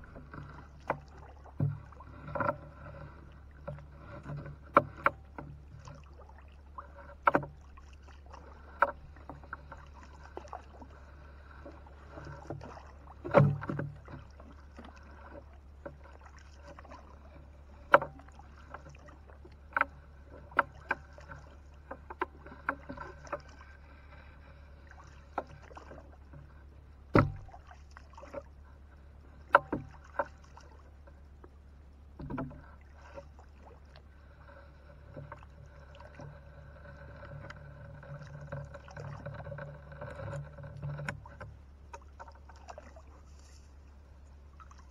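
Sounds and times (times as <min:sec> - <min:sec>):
heavy thuds on hull: 0:27.1 - 0:27.7
net and rope knocking: 0:27.1 - 0:27.7.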